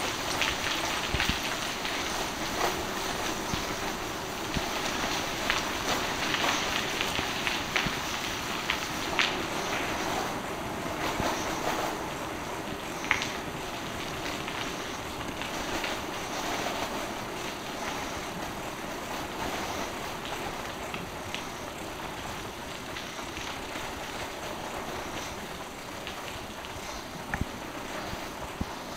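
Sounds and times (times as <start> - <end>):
bicycle tyre rolling noise: 0.0 - 28.9.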